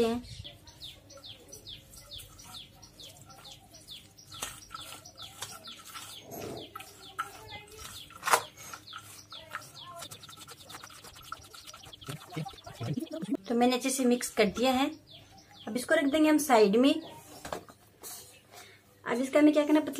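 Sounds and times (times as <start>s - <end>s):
bird chirping: 0.0s - 17.2s
hand mixing food in steel bowl: 1.8s - 13.4s.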